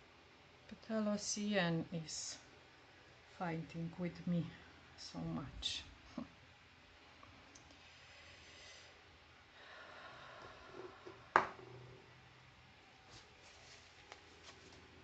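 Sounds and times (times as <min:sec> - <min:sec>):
faint rustling: 0:13.0 - 0:15.0.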